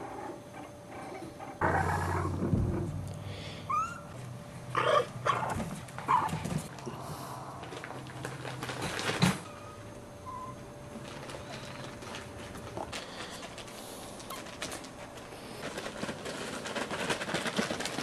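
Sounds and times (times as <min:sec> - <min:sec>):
dogs whining: 0:00.0 - 0:03.0, 0:03.6 - 0:06.4, 0:09.5 - 0:10.7
dogs yipping: 0:03.7 - 0:06.4.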